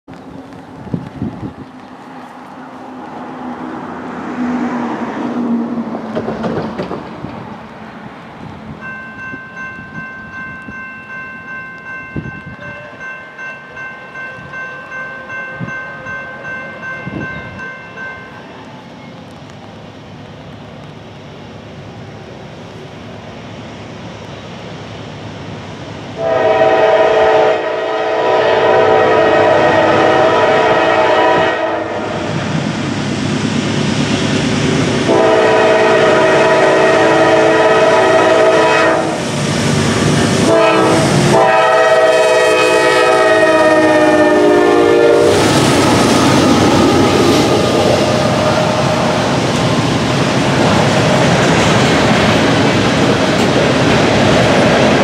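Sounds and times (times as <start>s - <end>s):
diesel locomotive rumbling: 0.1s - 55.0s
train wheels clattering: 5.8s - 7.6s, 45.2s - 55.0s
train air horn blasts: 26.2s - 32.2s, 35.1s - 39.3s, 40.3s - 45.5s.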